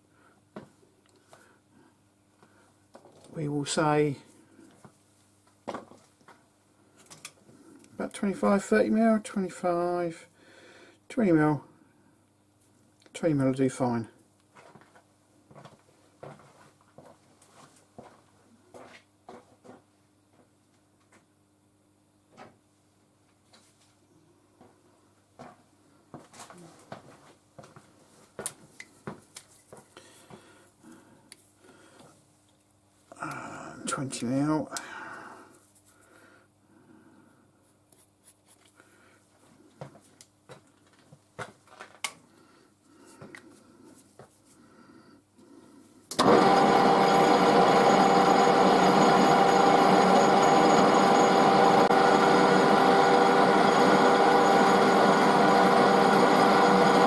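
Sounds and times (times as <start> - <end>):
metal lathe cutting: 46.2 - 57.0.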